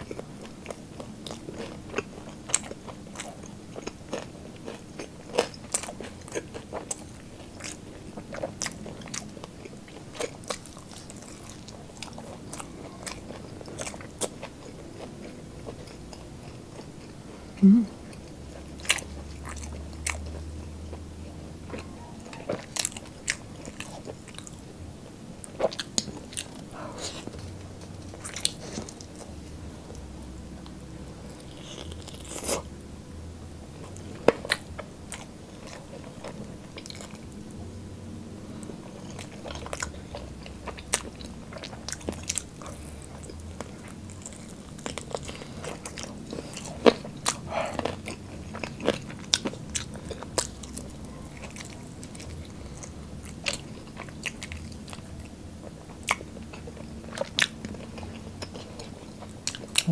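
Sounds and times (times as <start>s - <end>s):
crunching bites and chewing: 0.0s - 17.1s, 30.6s - 32.7s, 38.6s - 59.9s.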